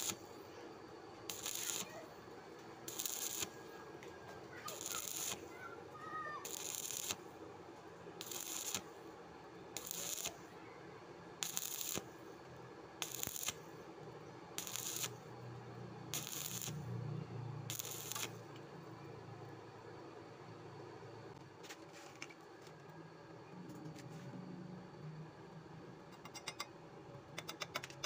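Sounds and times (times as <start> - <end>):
welding arc crackling: 0.0 - 0.3, 1.3 - 2.1, 2.8 - 3.7, 4.7 - 5.6, 6.4 - 7.4, 8.2 - 9.0, 9.8 - 10.4, 11.4 - 12.2, 13.0 - 13.7, 14.6 - 15.4, 16.0 - 18.4.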